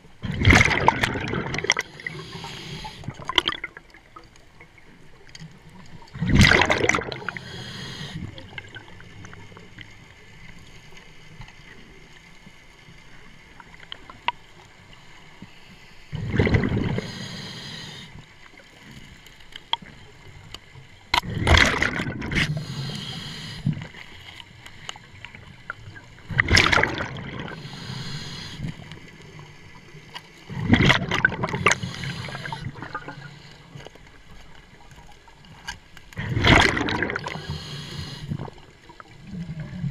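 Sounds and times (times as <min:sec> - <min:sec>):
quiet bubbling underwater: 0:00.0 - 0:39.9
gurgling exhaled air bubbles: 0:00.2 - 0:04.2, 0:06.0 - 0:09.4, 0:16.1 - 0:17.7, 0:21.2 - 0:24.0, 0:26.2 - 0:28.8, 0:30.5 - 0:33.2, 0:36.2 - 0:39.9.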